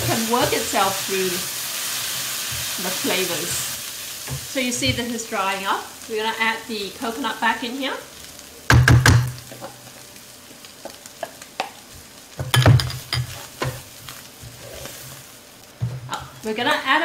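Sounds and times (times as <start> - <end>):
light sizzle: 0.0 - 17.0
wooden spoon scraping and stirring: 11.2 - 16.5.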